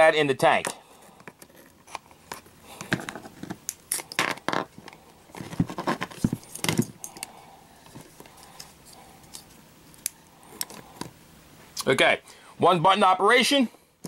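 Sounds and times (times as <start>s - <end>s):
wires clicking and rattling: 0.6s - 11.2s.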